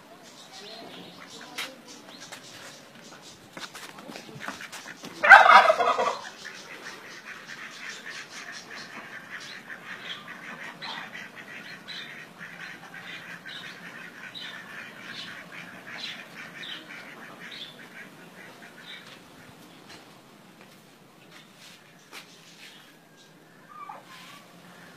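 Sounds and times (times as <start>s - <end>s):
high short peeping calls: 4.6s - 19.9s, 21.4s - 24.9s
turkey gobbling: 5.2s - 19.0s, 23.6s - 24.5s.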